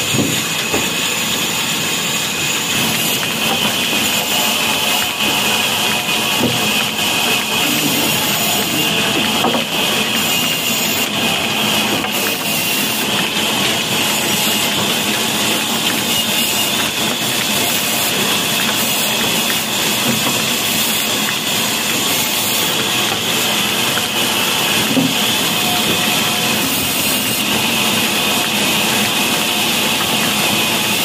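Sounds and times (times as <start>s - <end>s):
band saw running: 0.0s - 31.0s
high mechanical whine: 0.0s - 31.0s.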